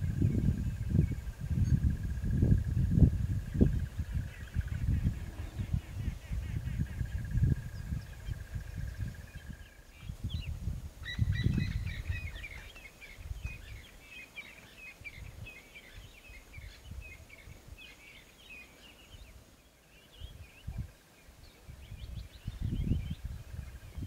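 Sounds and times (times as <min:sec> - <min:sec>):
low rumbling noise: 0:00.0 - 0:09.1
small birds chirping: 0:00.0 - 0:24.0.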